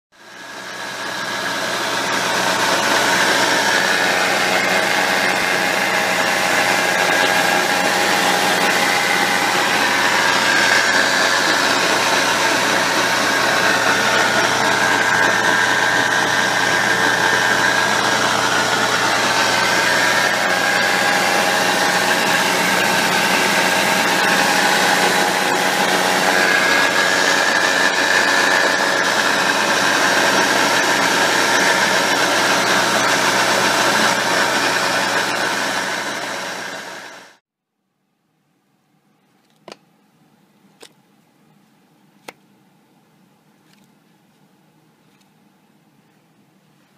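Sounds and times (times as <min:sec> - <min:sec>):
transmission whine: 0:00.2 - 0:37.4.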